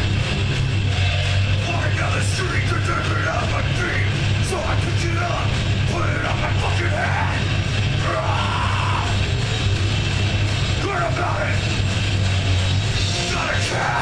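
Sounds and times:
heavy metal band playing: 0:00.0 - 0:14.0
yelled vocals: 0:01.3 - 0:11.9, 0:12.9 - 0:14.0.

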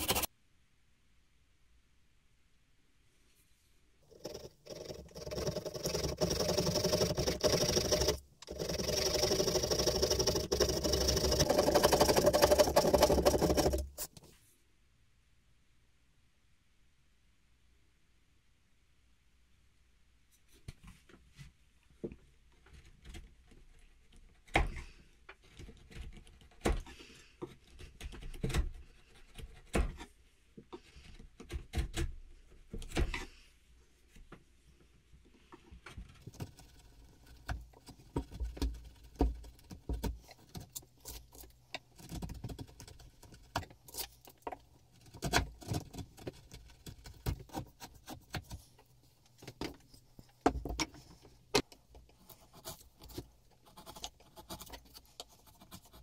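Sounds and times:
chisel cutting and scraping wood: 0:00.0 - 0:00.3, 0:04.0 - 0:14.2, 0:36.0 - 0:56.0.

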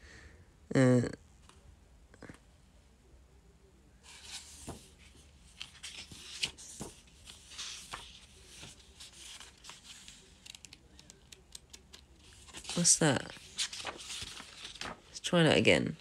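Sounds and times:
book pages flipping: 0:04.1 - 0:15.2
soft knocks of book handling: 0:04.2 - 0:12.7.

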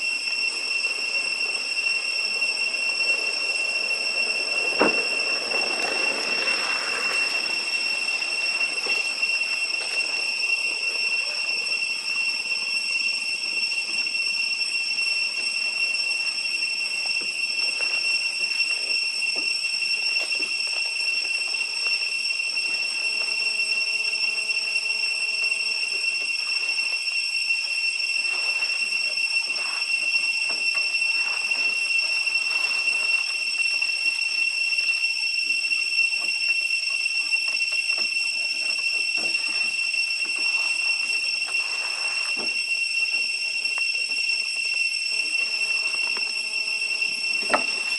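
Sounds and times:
cicadas droning: 0:00.0 - 0:47.9.

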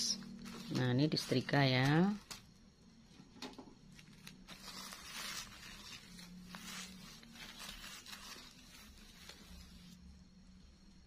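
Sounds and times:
iron scraping over plastic sheeting: 0:04.1 - 0:10.0.

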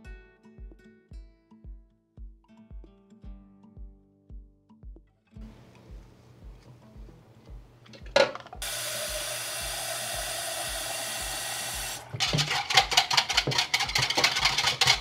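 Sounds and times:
tap running into plastic jug: 0:07.8 - 0:15.0
metal whisk rattling in jug: 0:12.0 - 0:15.0.

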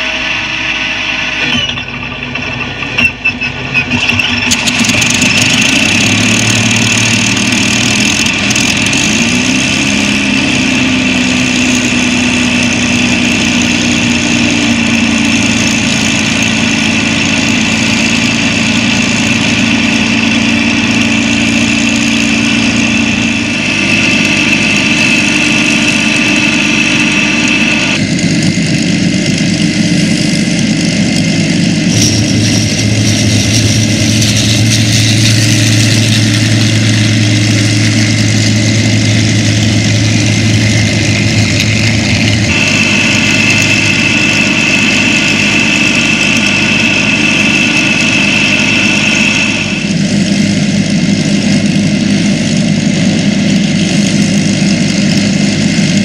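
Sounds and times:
aircraft engine idling: 0:00.0 - 0:56.0.

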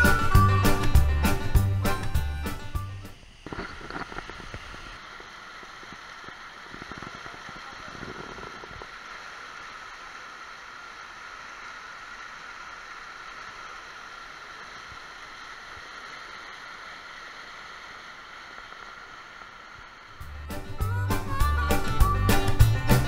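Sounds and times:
music: 0:00.0 - 0:03.2, 0:20.2 - 0:23.0.

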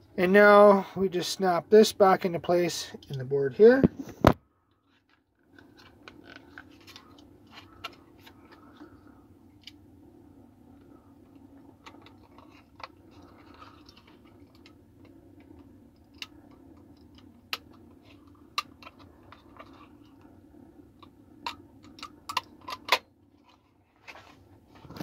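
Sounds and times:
faint steady hum: 0:00.0 - 0:25.0
plastic parts clicking and snapping: 0:21.0 - 0:23.6.

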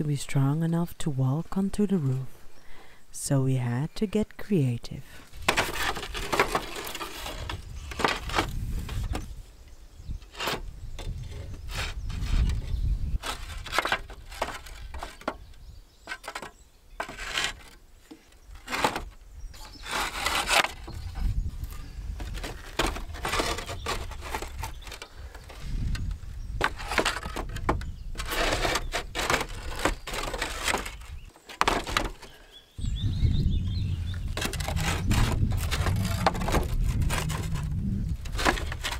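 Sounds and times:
roof tiles clattering and scraping: 0:05.2 - 0:09.3, 0:10.2 - 0:32.6, 0:34.2 - 0:38.9.

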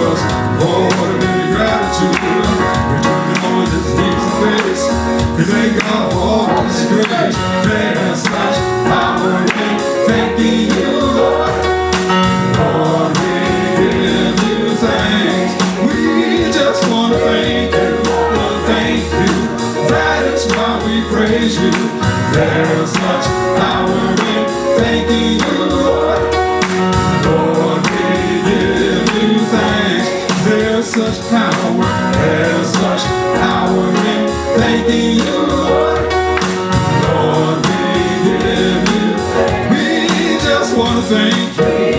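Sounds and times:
band playing gospel music: 0:00.0 - 0:41.9
voices singing: 0:00.0 - 0:41.9.

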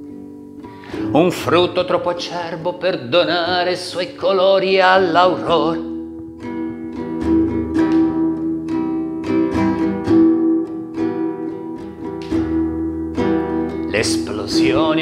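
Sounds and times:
classical guitar strummed chords: 0:00.0 - 0:15.0.

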